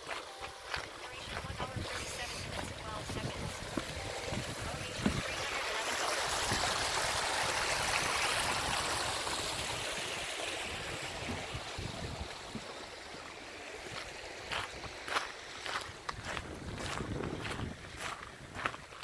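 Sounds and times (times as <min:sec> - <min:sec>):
stream rushing over rocks: 0:00.0 - 0:19.0.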